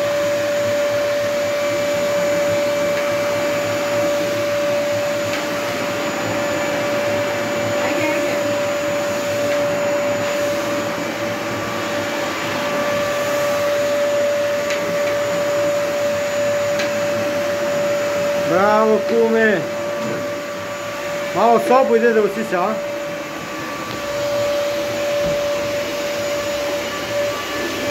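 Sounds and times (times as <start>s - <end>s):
vacuum cleaner running: 0.0s - 27.9s.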